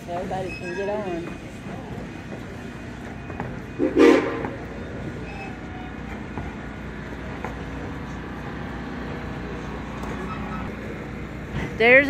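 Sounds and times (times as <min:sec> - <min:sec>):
steam locomotive whistle toot: 0:03.7 - 0:04.6.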